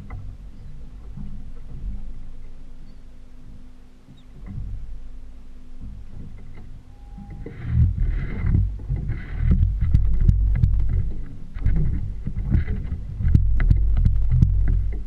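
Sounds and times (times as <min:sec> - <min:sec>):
hull knocking on waves: 0:00.0 - 0:02.7, 0:03.4 - 0:15.0
boat engine rumble: 0:00.0 - 0:15.0
water splashing: 0:00.0 - 0:15.0
wind on microphone: 0:05.8 - 0:15.0.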